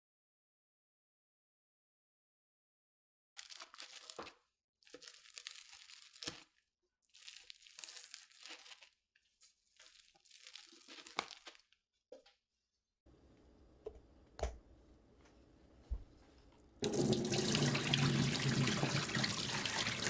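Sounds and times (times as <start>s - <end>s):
pizza crust crunching: 3.4s - 11.8s.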